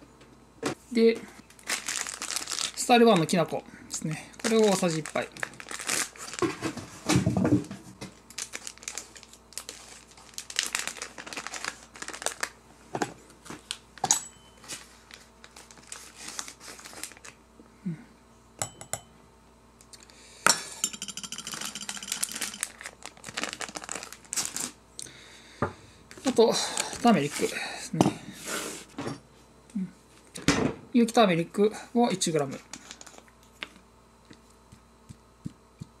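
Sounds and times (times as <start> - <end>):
plastic packet crinkling: 1.5 - 3.5, 4.3 - 6.7, 8.1 - 12.6, 14.6 - 17.4, 21.4 - 24.8
metal spoon clinking on dish: 20.5 - 22.4.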